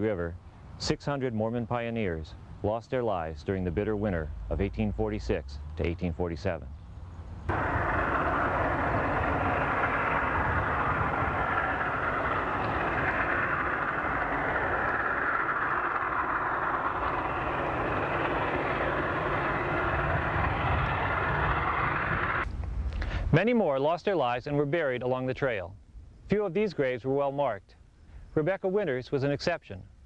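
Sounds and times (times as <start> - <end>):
rolling rail noise: 7.1 - 22.5
steam locomotive exhaust rush: 7.5 - 23.3.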